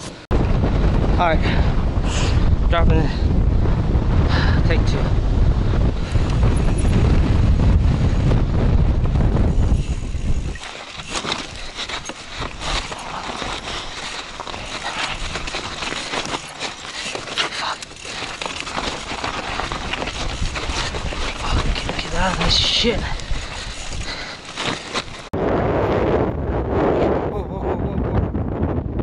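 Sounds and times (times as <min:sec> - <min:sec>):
wind buffeting microphone: 0:00.3 - 0:29.0
bike clicks and rattles: 0:06.0 - 0:08.2, 0:09.1 - 0:25.3
tyres crunching over dirt: 0:08.4 - 0:25.4.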